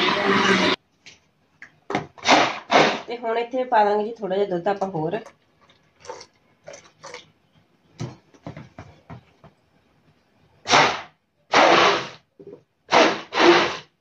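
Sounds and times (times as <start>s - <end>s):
electric hand blender bursts: 10.7s - 12.2s, 12.9s - 13.9s.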